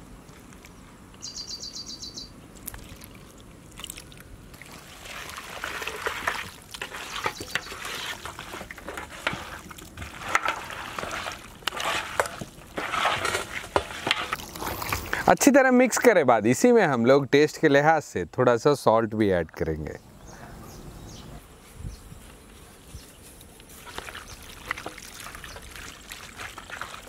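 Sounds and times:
bird trill: 0:01.2 - 0:02.4
oil trickling into metal pan: 0:03.8 - 0:14.4, 0:23.8 - 0:27.0.

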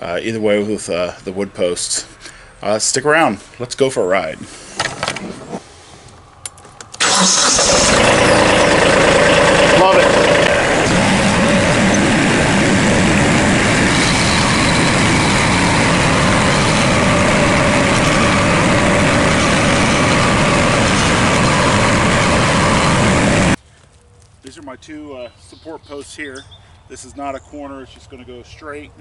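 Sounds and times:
tractor engine running: 0:06.8 - 0:23.6.

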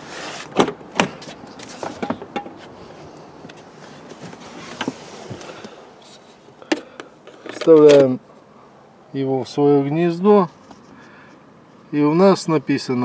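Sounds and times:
person climbing into car seat: 0:00.4 - 0:08.1.

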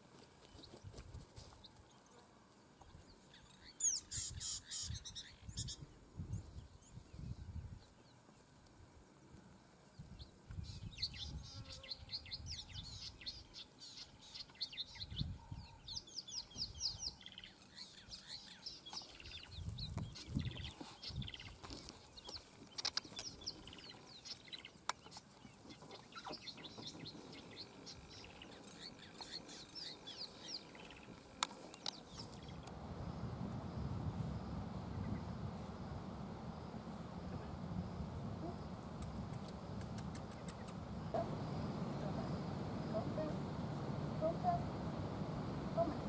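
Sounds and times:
guineafowl chirping calls: 0:03.8 - 0:05.8
low rumbles: 0:32.5 - 0:46.0
sharp clicks: 0:38.9 - 0:40.8.

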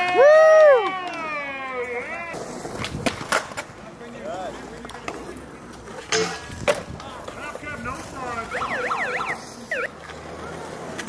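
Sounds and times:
skateboard wheels rolling on concrete: 0:00.0 - 0:11.0
skateboard clacks: 0:00.8 - 0:08.5, 0:10.0 - 0:11.0
warbling whistle-like sound: 0:08.5 - 0:09.9.

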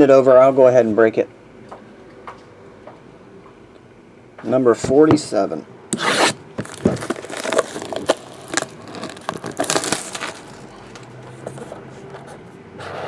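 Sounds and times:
plastic shrink wrap tearing: 0:06.0 - 0:11.7.

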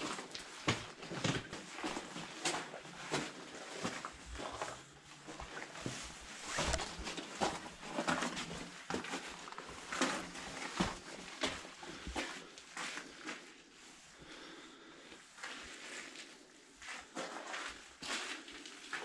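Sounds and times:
footsteps crunching on gravel: 0:00.6 - 0:08.6.

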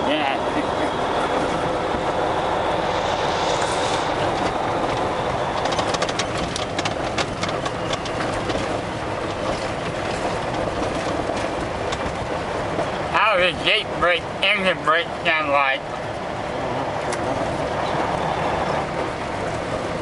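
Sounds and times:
rattling over gravel road: 0:00.0 - 0:20.0
truck engine and road rumble: 0:00.0 - 0:20.0.

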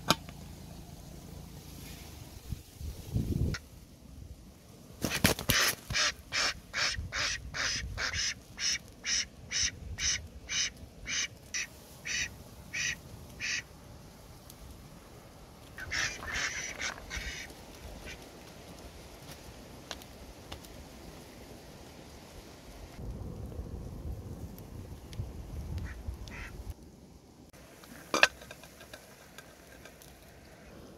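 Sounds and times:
ducks quacking: 0:15.8 - 0:18.2, 0:25.8 - 0:26.6.

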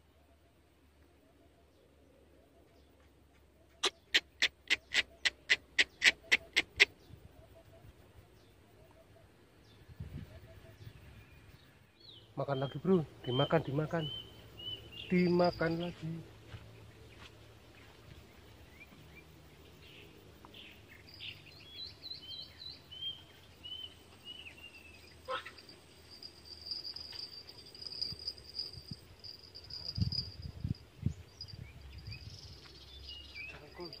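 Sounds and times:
insect high-pitched buzz: 0:17.8 - 0:34.0.

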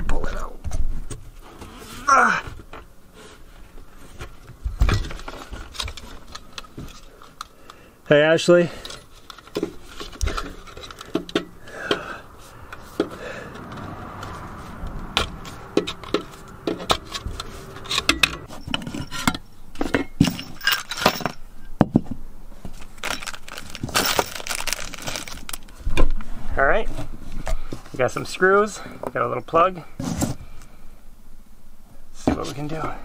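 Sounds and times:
metal screws clinking: 0:08.8 - 0:11.6, 0:20.1 - 0:21.4.

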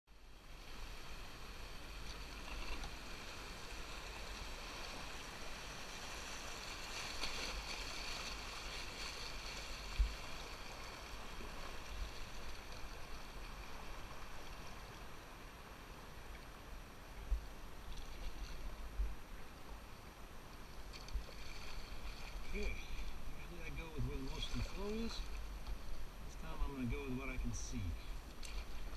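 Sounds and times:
river water rushing along hull: 0:00.1 - 0:28.9.

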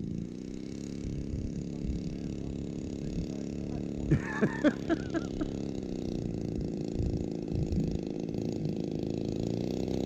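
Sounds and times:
model plane engine idling: 0:00.0 - 0:10.0.

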